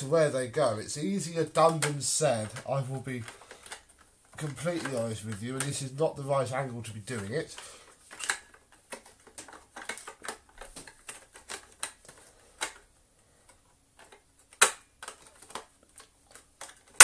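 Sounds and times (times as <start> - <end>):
plastic parts clicking: 1.4 - 5.9, 7.1 - 17.0.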